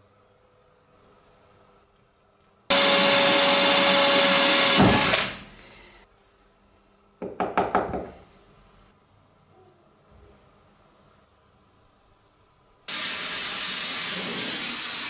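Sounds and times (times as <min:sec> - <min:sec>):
power tool on metal: 0:02.7 - 0:05.4.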